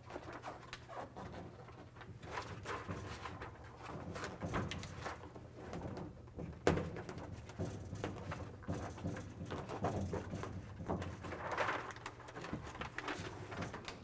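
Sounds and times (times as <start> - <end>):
foil mat crinkling and rustling: 9.7 - 14.0.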